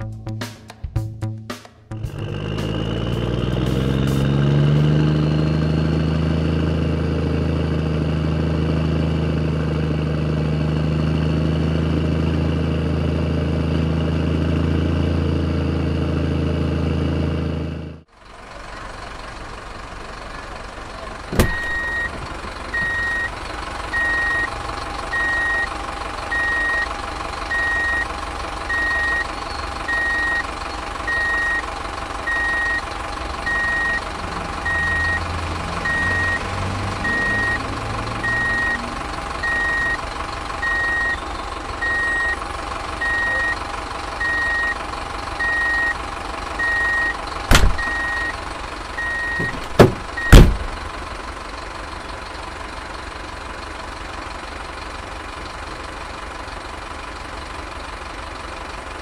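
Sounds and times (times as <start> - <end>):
truck engine running: 0.0 - 59.0
truck reversing alarm beeping: 21.3 - 40.0, 40.6 - 50.8
sharp loud knocks: 47.5 - 47.9, 49.4 - 50.7.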